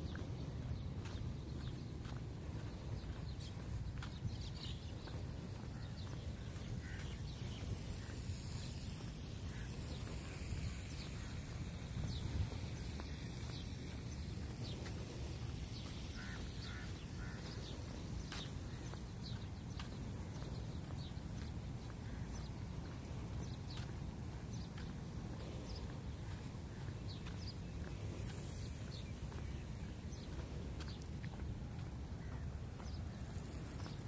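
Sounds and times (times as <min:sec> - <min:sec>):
steady low rumble: 0:00.0 - 0:34.0.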